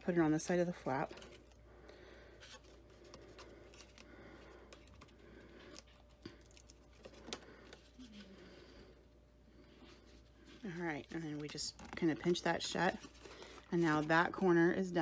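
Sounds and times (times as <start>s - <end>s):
cardstock rustling: 10.4s - 14.5s.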